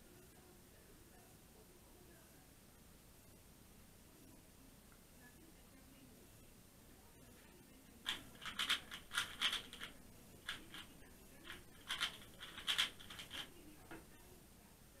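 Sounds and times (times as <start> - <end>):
plastic puzzle cube clicking turns: 8.1 - 14.0.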